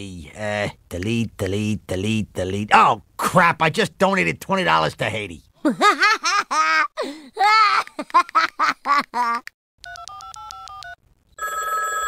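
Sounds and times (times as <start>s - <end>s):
cartoon boy laughing: 5.6s - 9.5s
phone keypad tones: 9.8s - 12.0s.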